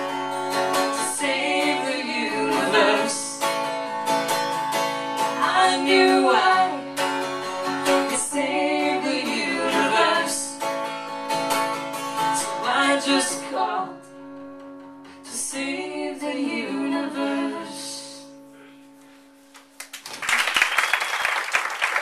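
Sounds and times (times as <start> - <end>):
acoustic guitar strumming: 0.0 - 15.6
woman singing: 0.8 - 3.5, 5.3 - 6.9, 7.8 - 10.6, 12.2 - 14.1, 15.3 - 18.4.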